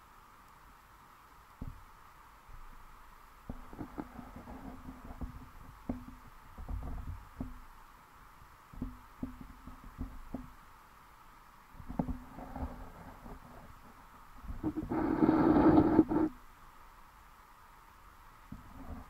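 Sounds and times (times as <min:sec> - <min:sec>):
muffled underwater knocks: 0:03.5 - 0:07.6, 0:08.8 - 0:10.6.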